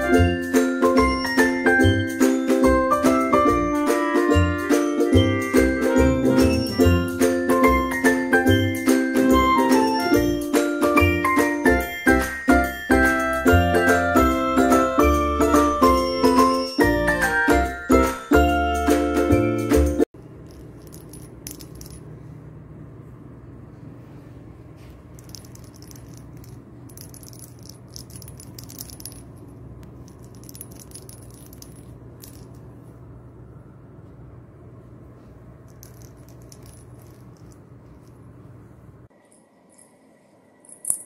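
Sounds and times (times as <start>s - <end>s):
low room hum: 20.2s - 41.0s
toy ball rattling: 20.4s - 22.1s, 25.1s - 32.7s, 35.7s - 38.3s, 40.6s - 41.0s.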